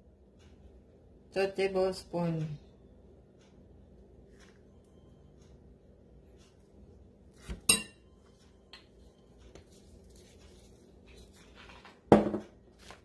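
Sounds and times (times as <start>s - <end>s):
metal spoon clinking on ceramic bowl: 7.7s - 8.0s.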